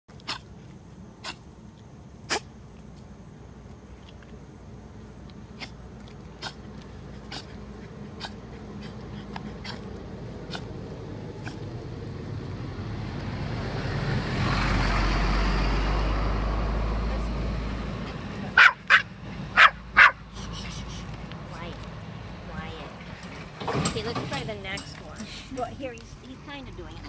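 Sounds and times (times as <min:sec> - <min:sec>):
car approaching: 0:00.2 - 0:27.0
dog snorting and sniffing: 0:05.5 - 0:11.7.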